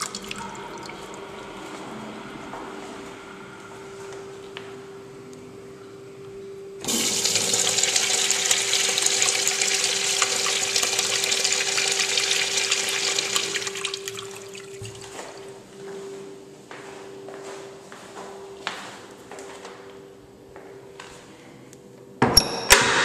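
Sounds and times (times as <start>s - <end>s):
urinal flushing water rush: 0.0s - 1.8s, 6.8s - 15.2s.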